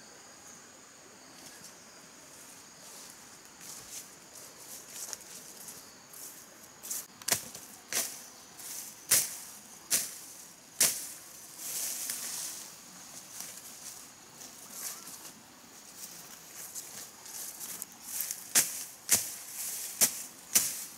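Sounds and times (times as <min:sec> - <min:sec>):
leaves rustling: 0:01.3 - 0:20.9
machete slashing through weeds: 0:10.8 - 0:11.2, 0:18.4 - 0:20.9.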